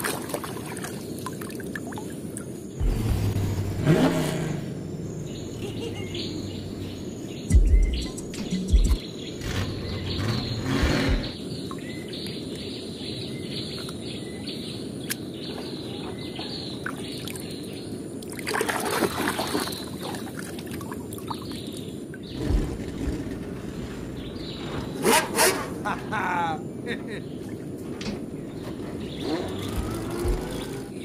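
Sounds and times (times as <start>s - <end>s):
water sloshing in puddle: 0.0s - 2.1s, 18.3s - 21.4s
small birds chirping: 0.6s - 18.4s, 19.3s - 31.0s.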